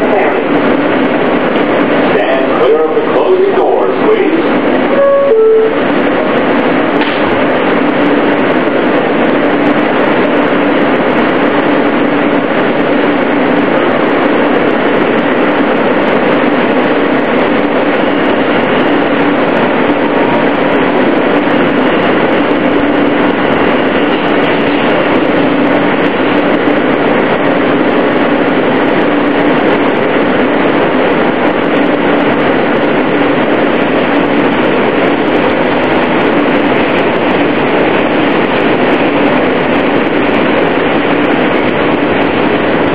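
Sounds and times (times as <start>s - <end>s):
wheels rumbling on rail: 0.0s - 42.9s
faint hum: 2.1s - 6.4s.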